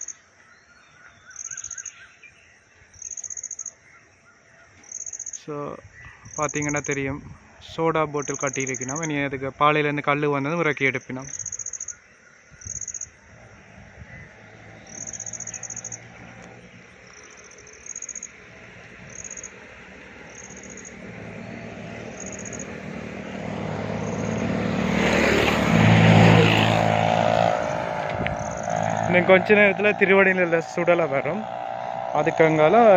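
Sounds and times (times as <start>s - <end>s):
insect chirping in high trills: 0.0s - 9.6s, 10.4s - 24.8s, 27.4s - 29.3s
vehicle engine: 12.6s - 32.9s.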